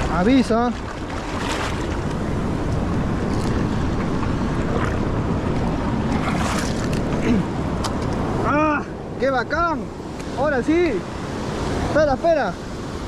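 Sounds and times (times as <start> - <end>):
ocean surf rushing: 0.0 - 13.0
wind buffeting microphone: 0.0 - 13.0.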